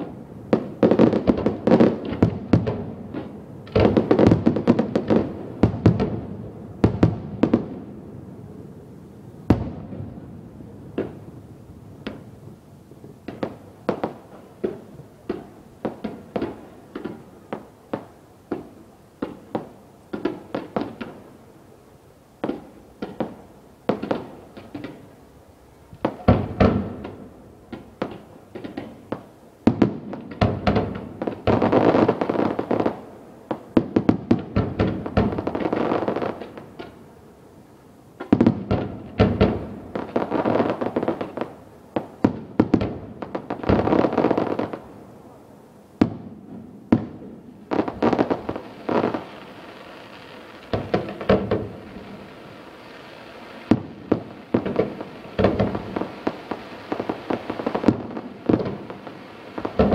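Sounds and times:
fireworks bangs: 46.0s - 59.9s.

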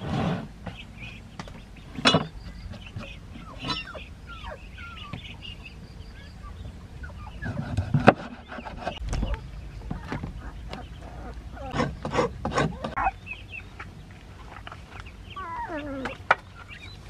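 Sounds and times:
bird chirps: 0.6s - 7.7s, 8.3s - 17.0s.

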